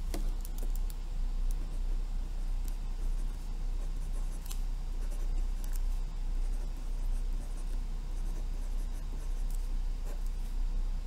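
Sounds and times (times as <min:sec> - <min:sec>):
steady low hum: 0:00.0 - 0:11.0
pen scratching on paper: 0:03.0 - 0:10.5.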